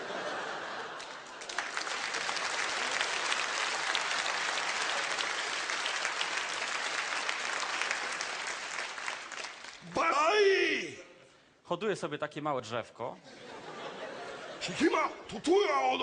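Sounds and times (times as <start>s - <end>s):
audience applauding: 0.5s - 10.3s.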